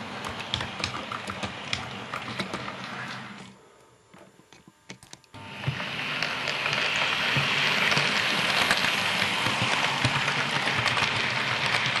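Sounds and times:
model train wheels rattling on rail: 6.1s - 12.0s.

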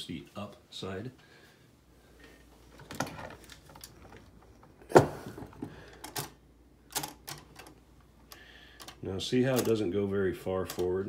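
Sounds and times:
typewriter mechanism clacking: 6.9s - 7.7s.

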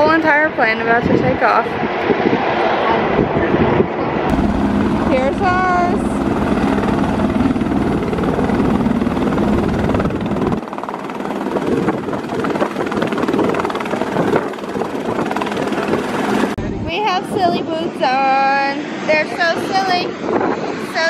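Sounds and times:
helicopter rotor and engine: 2.8s - 21.0s.

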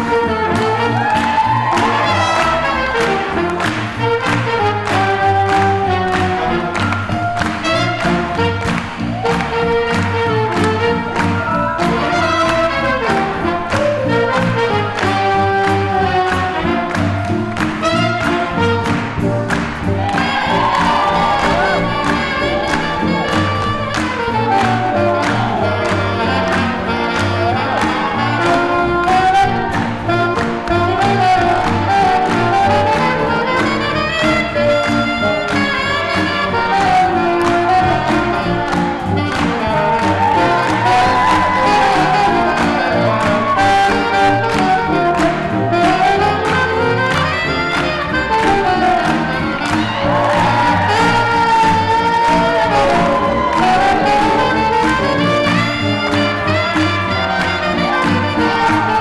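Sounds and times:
trumpets and saxophones: 0.0s - 59.0s
upright bass: 0.0s - 59.0s
drums keeping a steady beat: 3.1s - 33.7s.

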